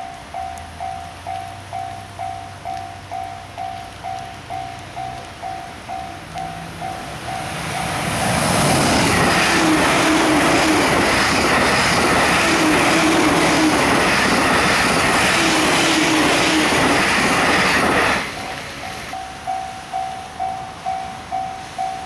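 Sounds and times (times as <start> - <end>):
train passing at speed: 0.0 - 22.0.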